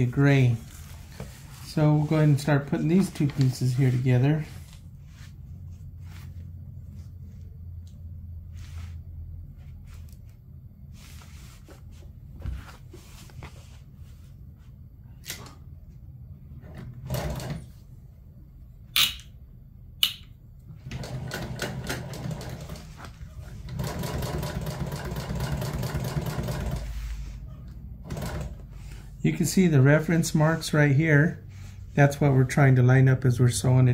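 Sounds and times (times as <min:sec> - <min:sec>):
sewing machine stitching: 0:16.8 - 0:17.7, 0:20.8 - 0:23.0, 0:23.7 - 0:26.9, 0:28.0 - 0:28.6.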